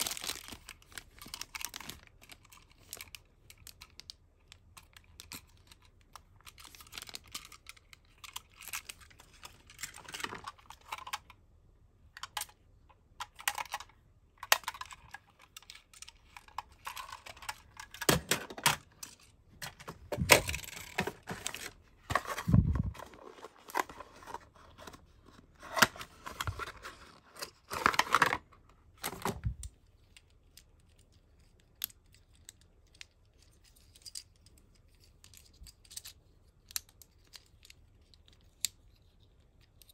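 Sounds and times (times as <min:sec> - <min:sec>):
plastic bag crinkling and tearing: 0:00.0 - 0:03.2
small plastic parts clicking: 0:13.2 - 0:21.4.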